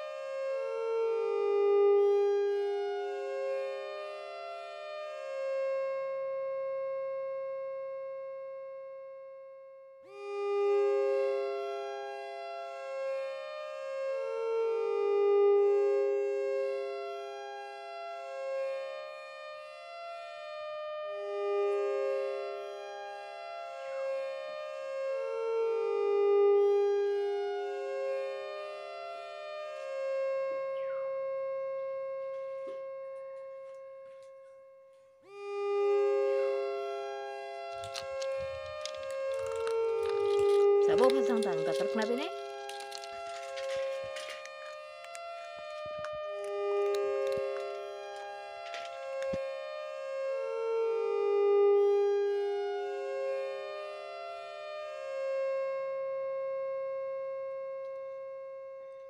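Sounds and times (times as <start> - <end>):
slow sustained music chords: 0.0 - 34.6, 35.2 - 59.0
slow electronic background music: 30.2 - 33.2.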